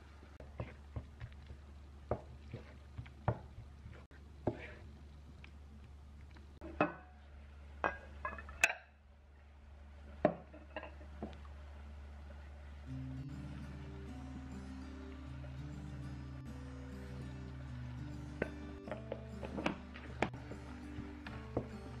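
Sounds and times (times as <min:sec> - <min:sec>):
low steady hum: 0:00.0 - 0:22.0
wooden spatula scraping frying pan: 0:00.4 - 0:01.2, 0:02.2 - 0:04.9.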